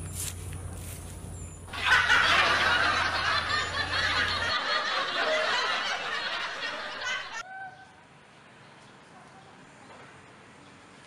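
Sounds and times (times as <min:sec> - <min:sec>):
people laughing together: 0:01.7 - 0:07.4.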